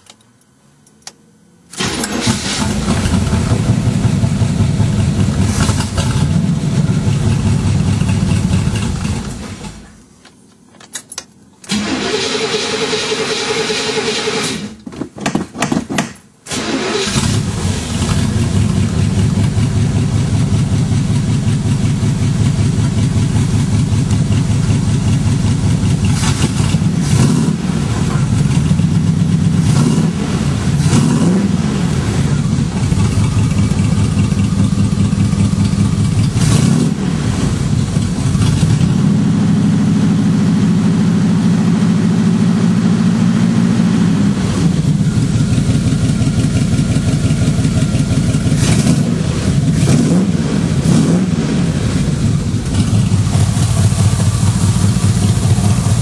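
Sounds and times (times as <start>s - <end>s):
car engine idling: 1.8s - 10.0s, 17.1s - 56.0s
engine revving: 25.2s - 56.0s.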